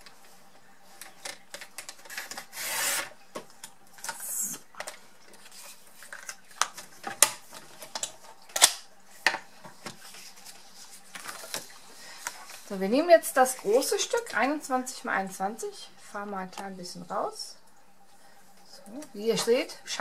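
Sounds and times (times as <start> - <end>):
paper trimmer blade rasping: 2.5 - 3.1.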